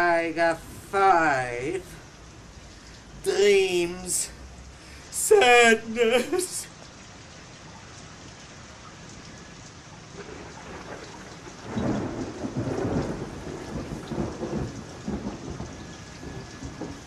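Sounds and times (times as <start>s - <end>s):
steady rain: 0.0s - 17.0s
thunder rumbling: 9.3s - 17.0s.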